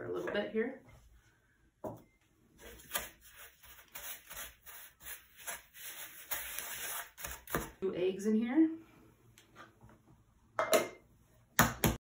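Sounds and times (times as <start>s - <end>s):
wooden spoon scraping plastic bowl: 2.6s - 7.8s.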